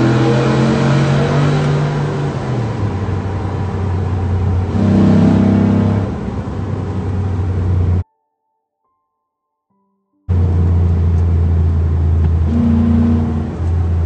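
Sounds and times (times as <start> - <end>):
truck engine accelerating: 0.0 - 8.0, 10.3 - 14.0.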